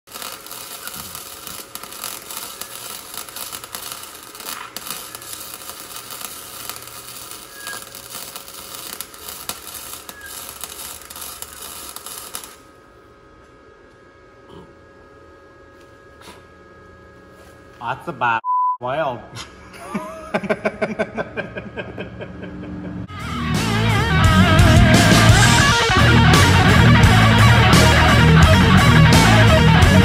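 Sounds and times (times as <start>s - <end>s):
welder crackling: 0.0s - 14.0s.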